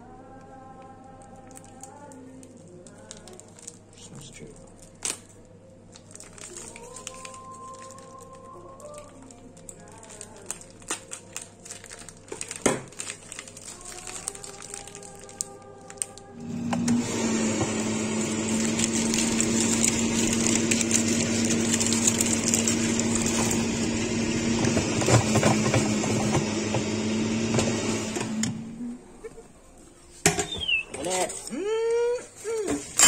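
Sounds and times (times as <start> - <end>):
air fryer fan whirring: 16.4 - 28.8.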